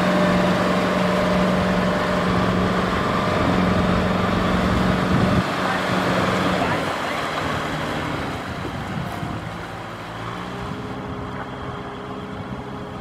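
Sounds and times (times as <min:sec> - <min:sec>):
diesel tractor engine running: 0:00.0 - 0:13.0.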